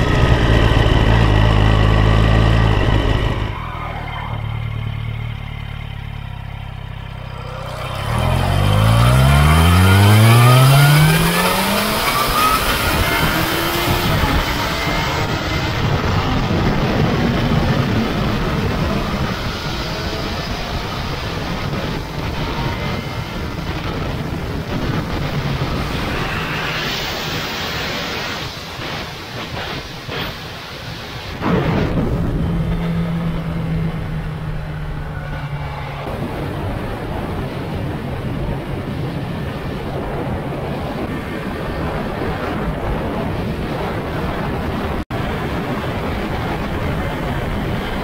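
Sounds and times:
motorcycle engine running: 0:00.0 - 0:29.0, 0:31.8 - 0:37.9
road and wind noise: 0:00.0 - 0:48.0.

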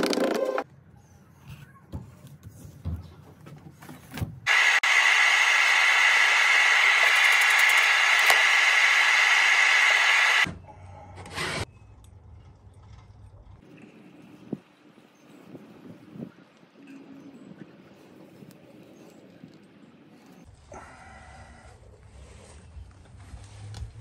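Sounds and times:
aerosol spray hissing: 0:04.5 - 0:10.5.

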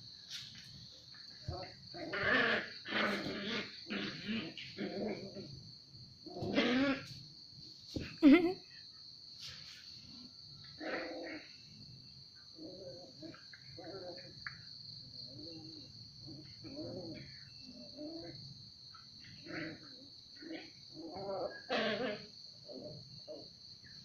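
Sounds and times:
puppies growling: 0:01.5 - 0:07.2, 0:19.4 - 0:23.4.

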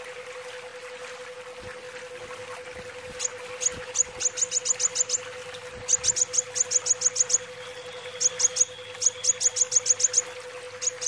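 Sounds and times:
steady hum: 0:00.0 - 0:11.0
sunbird chirping: 0:03.2 - 0:05.2, 0:05.9 - 0:11.0.

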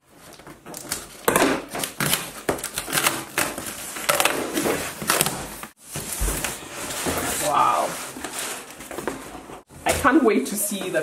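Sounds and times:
cardboard crackling and rustling: 0:00.1 - 0:10.2.

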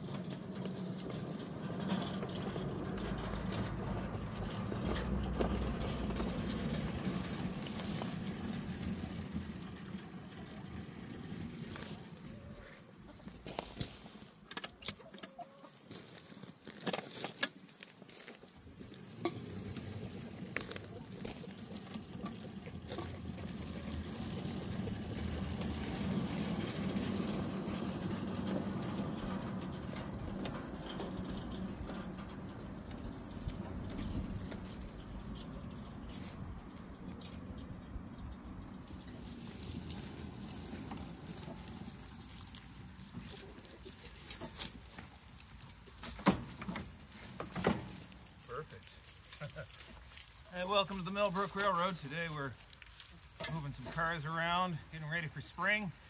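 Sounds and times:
miniature train motor running: 0:01.0 - 0:12.6, 0:18.6 - 0:36.3, 0:38.8 - 0:46.1.

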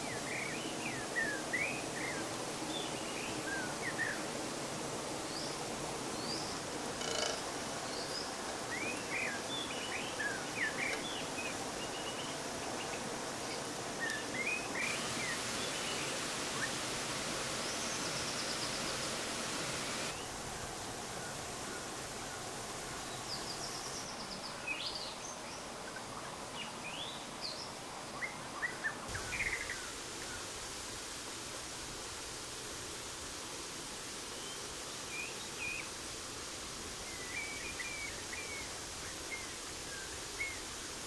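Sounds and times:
waterfall rushing: 0:00.0 - 0:23.7
small birds chirping: 0:05.2 - 0:20.4.

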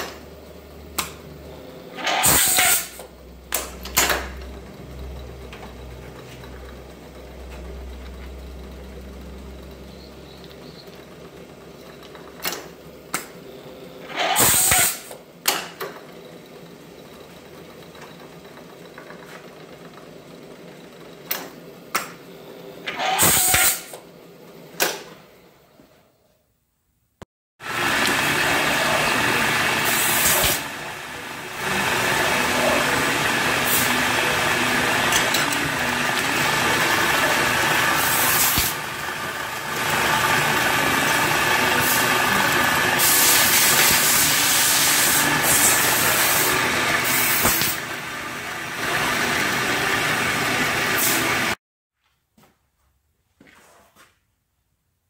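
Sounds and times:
lathe running and cutting: 0:00.0 - 0:12.4, 0:27.6 - 0:51.6.

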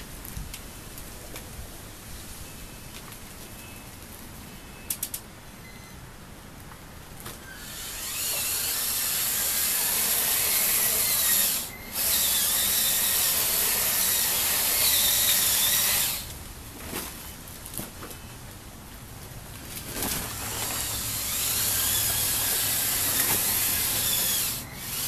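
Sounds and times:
high electric motor whine: 0:07.5 - 0:16.3, 0:20.5 - 0:25.0.

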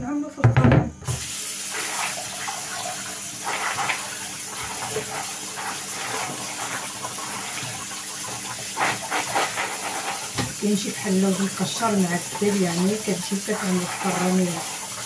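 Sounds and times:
tap running into a bowl: 0:00.4 - 0:01.3, 0:06.1 - 0:10.6
hands rubbing almonds in water: 0:08.4 - 0:15.0.

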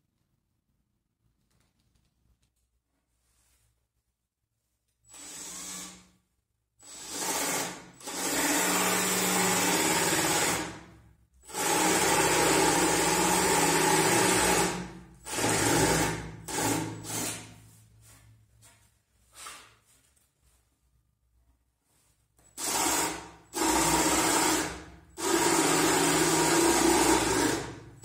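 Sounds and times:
cordless drill boring into wood: 0:05.1 - 0:06.1, 0:06.8 - 0:10.8, 0:11.5 - 0:17.4, 0:22.6 - 0:27.8.

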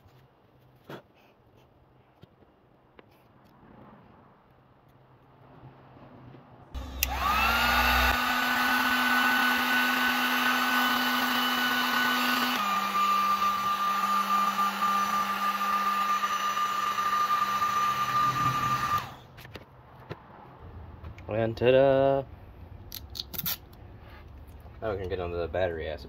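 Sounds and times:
heat gun fan whine: 0:06.8 - 0:19.3.

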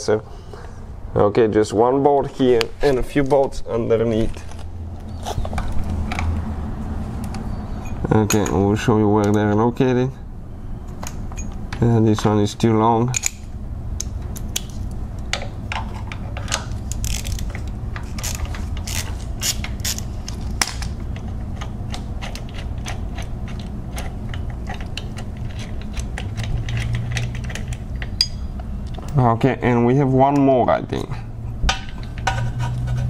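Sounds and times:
steady low hum: 0:00.0 - 0:33.0
hand ratchet clicking: 0:16.9 - 0:20.4.

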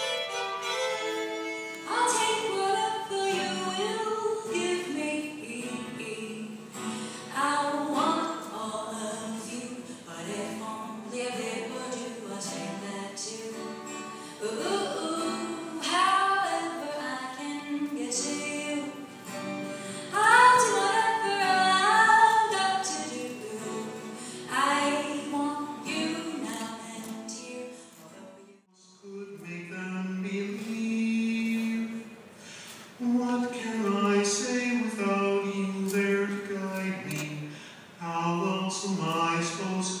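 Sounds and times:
woman singing: 0:01.8 - 0:19.3, 0:19.9 - 0:29.2.

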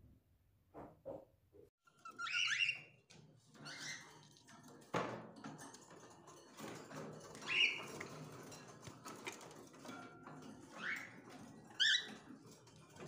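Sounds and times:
birds scratching on cage floor: 0:03.0 - 0:13.0.

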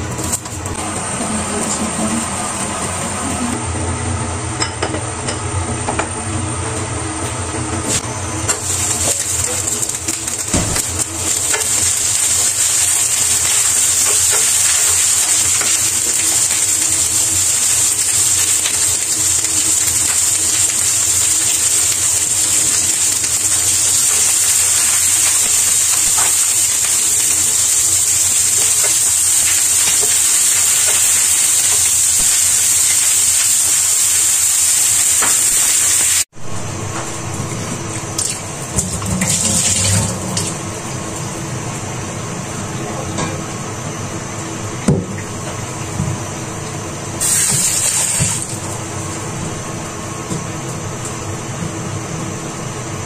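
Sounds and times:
vegetables sizzling in hot oil: 0:07.9 - 0:36.3, 0:47.2 - 0:49.2.

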